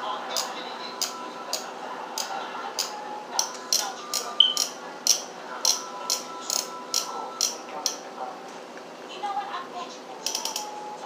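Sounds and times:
brief high beep: 4.4 - 4.6.

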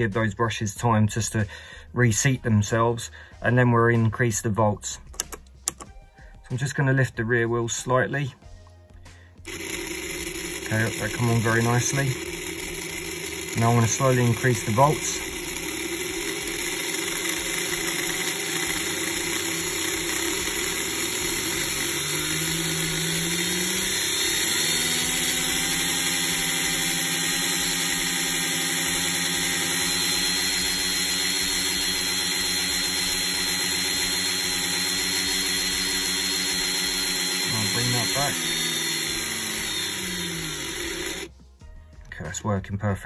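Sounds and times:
slot-car motor whine: 9.5 - 41.3.

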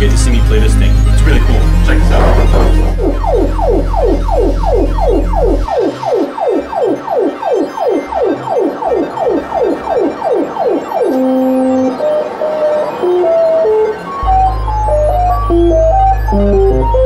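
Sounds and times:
low synthesizer drone: 0.0 - 17.0
synthesizer falling zaps: 1.2 - 17.0.

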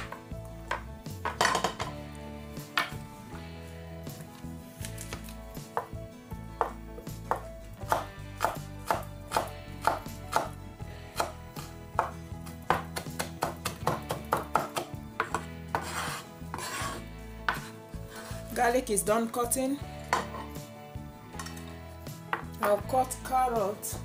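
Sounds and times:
knife chopping on wooden board: 6.6 - 10.6, 11.2 - 11.4, 12.0 - 17.7.

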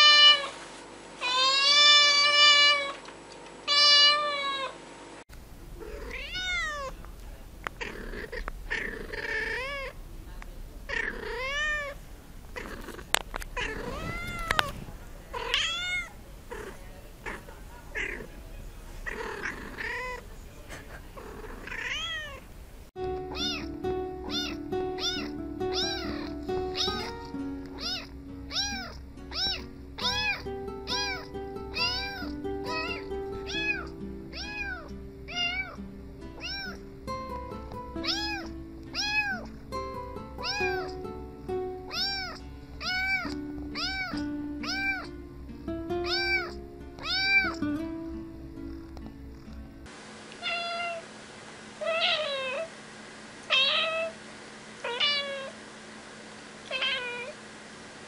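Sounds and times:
cat meowing loudly: 0.0 - 0.5, 1.2 - 3.0, 3.7 - 4.8, 5.8 - 7.0, 7.8 - 10.0, 10.9 - 12.0, 13.6 - 16.7, 21.6 - 22.4, 23.3 - 23.7, 24.3 - 27.1, 27.8 - 35.8, 36.4 - 36.8, 38.0 - 39.5, 40.4 - 40.9, 41.9 - 45.1, 46.0 - 47.6, 50.4 - 51.0, 51.8 - 52.7, 53.5 - 54.2, 54.8 - 55.6, 56.7 - 57.4
kitten mewing: 1.2 - 3.0, 3.7 - 4.7, 5.8 - 7.0, 7.7 - 10.0, 10.9 - 18.3, 19.0 - 20.2, 21.2 - 22.4, 23.3 - 35.8, 36.4 - 36.8, 38.0 - 39.6, 40.4 - 41.0, 41.9 - 45.2, 46.0 - 47.6, 50.4 - 51.0, 51.8 - 52.7, 53.5 - 54.2, 56.7 - 57.4
background music: 23.0 - 49.9.

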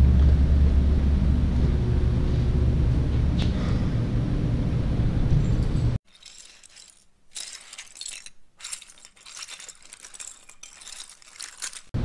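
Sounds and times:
steady low rumble: 0.0 - 6.0
plastic bricks clinking: 6.0 - 12.0.

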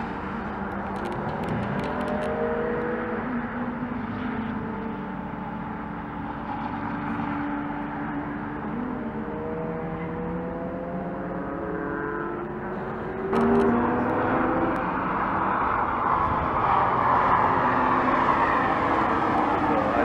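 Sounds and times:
sports car engine accelerating past: 1.1 - 5.2, 6.5 - 20.0.

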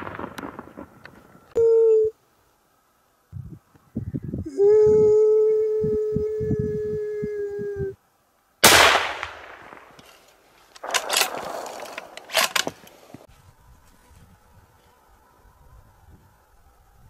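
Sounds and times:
sharp cracks: 0.0 - 1.6, 8.6 - 13.3
coyote howling: 4.4 - 8.0
rifle shot: 8.6 - 10.1, 10.8 - 12.7.

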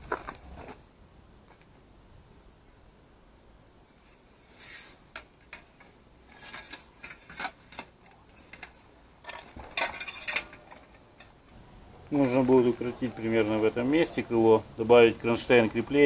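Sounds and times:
bicycle mudguard clattering: 5.2 - 11.4.

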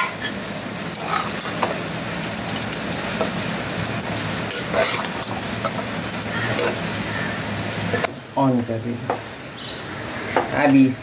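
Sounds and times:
masala sizzling: 0.0 - 11.0
metal ladle scraping pot: 1.0 - 1.7, 4.5 - 5.8, 6.4 - 6.9.

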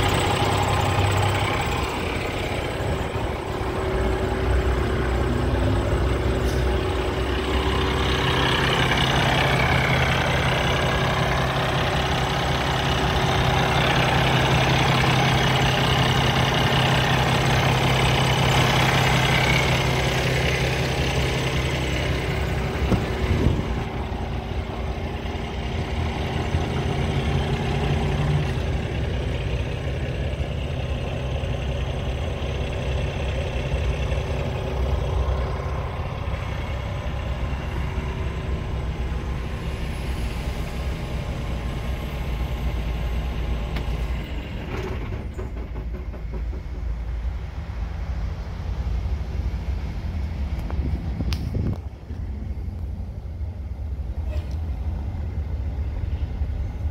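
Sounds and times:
truck diesel engine idling: 0.0 - 56.9.

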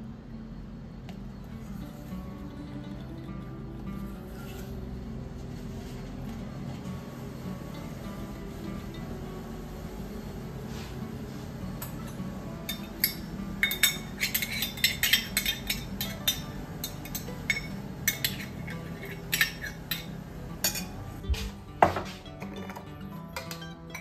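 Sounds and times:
metal spoon clinking against bowl: 11.8 - 21.0, 22.6 - 24.0.

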